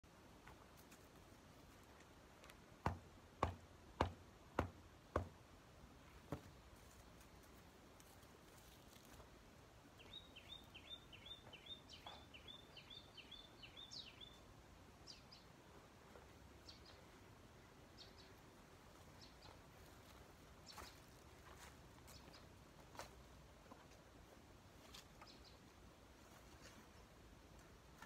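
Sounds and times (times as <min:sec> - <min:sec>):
hand tool knocking soil: 0:02.8 - 0:05.4
small bird chirping: 0:09.9 - 0:15.5, 0:16.6 - 0:17.2, 0:17.9 - 0:19.7, 0:25.2 - 0:25.7.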